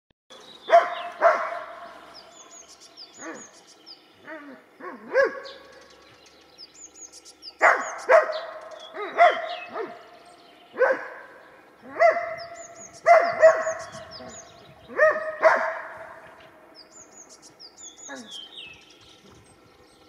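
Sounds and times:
small birds chirping: 0:00.3 - 0:20.0
dog yipping: 0:00.7 - 0:01.8, 0:04.4 - 0:05.5, 0:07.6 - 0:10.0, 0:10.8 - 0:11.2, 0:11.9 - 0:16.2
dog barking: 0:00.7 - 0:02.0, 0:04.8 - 0:05.6, 0:07.6 - 0:10.0, 0:10.8 - 0:16.3.

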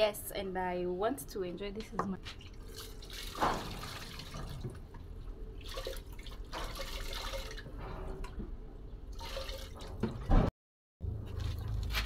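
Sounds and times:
water trickling and dripping: 0:02.2 - 0:08.4, 0:11.0 - 0:12.0.

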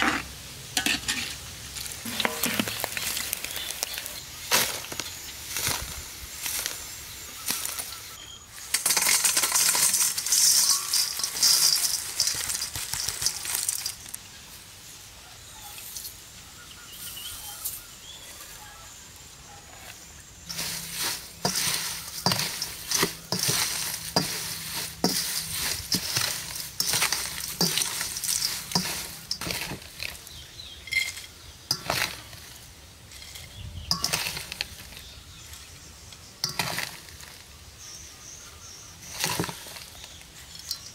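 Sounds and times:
fried insects rattling in metal bowl: 0:00.7 - 0:14.2, 0:20.4 - 0:40.9
spatula scraping and clicking on metal: 0:08.7 - 0:14.1, 0:19.9 - 0:35.6, 0:36.4 - 0:37.3.

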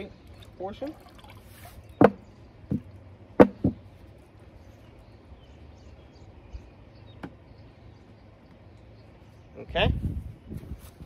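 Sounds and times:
jug glugging: 0:00.0 - 0:02.2
liquid pouring into bucket: 0:00.2 - 0:01.6.

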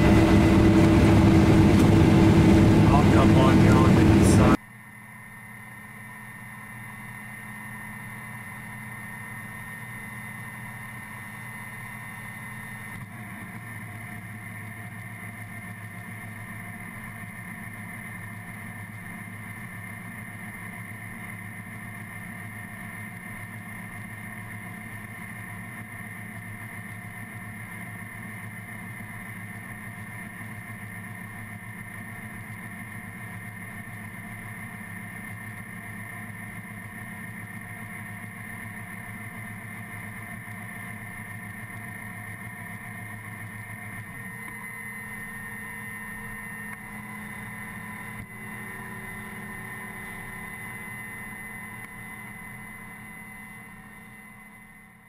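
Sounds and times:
combine harvester drone: 0:00.0 - 0:55.0
high machine whines: 0:00.0 - 0:55.0.

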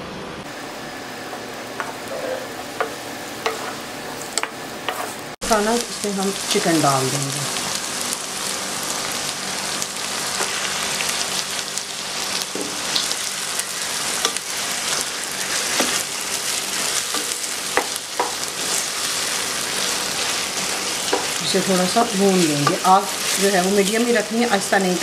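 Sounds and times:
chicken sizzling in oil: 0:00.6 - 0:25.0
wooden spatula scraping a wok: 0:01.3 - 0:05.4, 0:13.8 - 0:23.9.

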